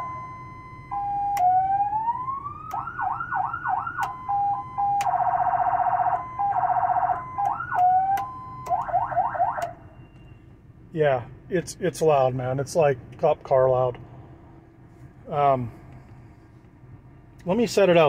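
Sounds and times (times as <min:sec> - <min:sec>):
electronic siren: 0:00.0 - 0:10.3.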